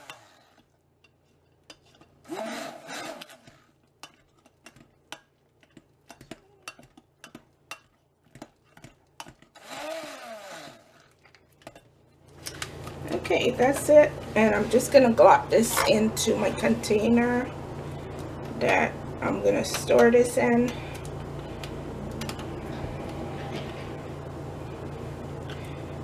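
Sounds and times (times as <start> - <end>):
stick blender churning paste: 0.0 - 11.8.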